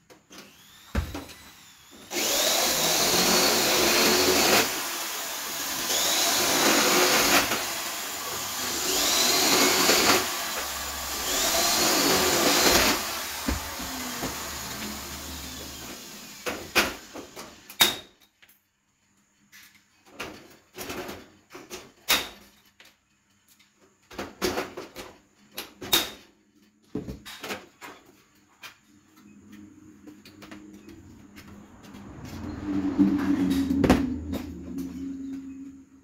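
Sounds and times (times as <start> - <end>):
motor whir: 0.5 - 16.4.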